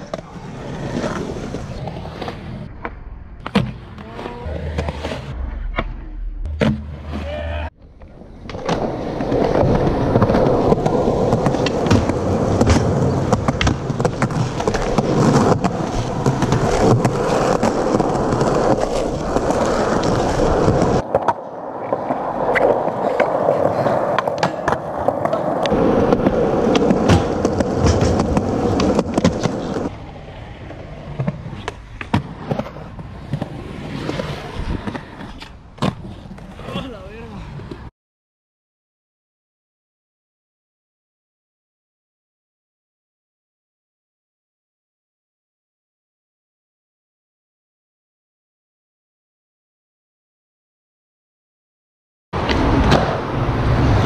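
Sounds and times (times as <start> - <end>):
skateboard wheels rolling on concrete: 0.0 - 37.9, 52.4 - 54.0
skateboard clacking: 6.6 - 29.9.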